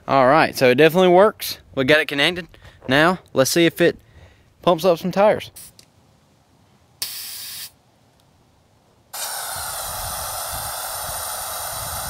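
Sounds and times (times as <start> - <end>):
compressed air hissing: 7.0 - 7.8, 9.1 - 12.0.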